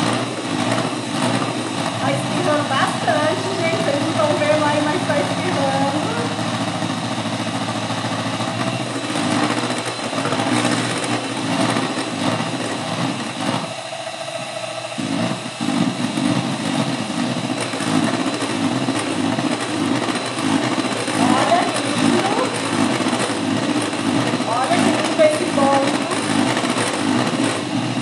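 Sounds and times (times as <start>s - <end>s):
electric mixer whirring: 0.0s - 28.0s.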